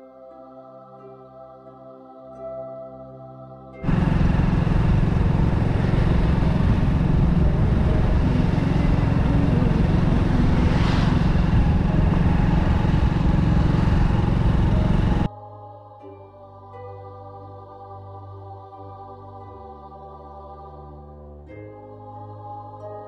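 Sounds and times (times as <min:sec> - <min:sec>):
vehicle engine and road noise: 0:03.8 - 0:15.3
wind buffeting microphone: 0:03.8 - 0:15.3.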